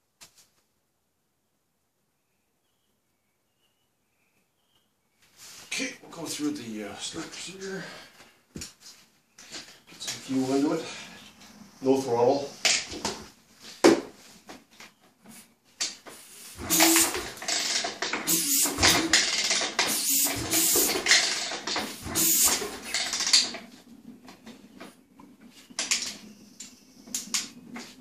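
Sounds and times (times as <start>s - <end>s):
dirt bike engine kicked over: 16.6s - 23.7s.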